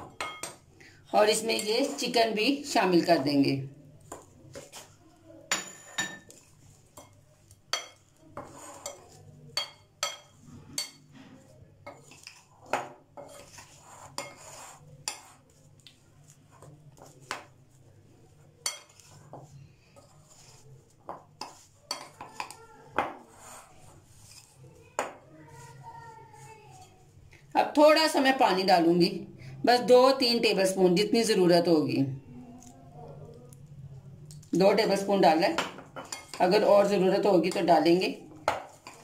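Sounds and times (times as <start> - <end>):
taps and clinks on glass bowl: 5.5 - 6.3.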